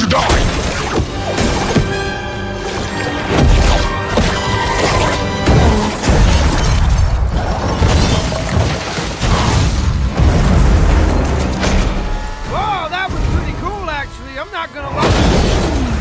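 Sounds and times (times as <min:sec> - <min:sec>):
cars crashing: 0:04.4 - 0:16.0
score music: 0:11.1 - 0:16.0.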